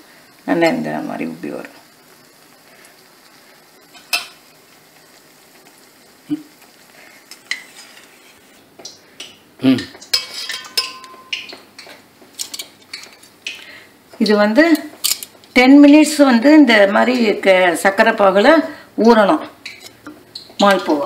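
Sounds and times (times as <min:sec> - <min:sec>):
food frying in hot oil: 0:00.0 - 0:21.0
tongs clinking against pot: 0:09.2 - 0:13.2.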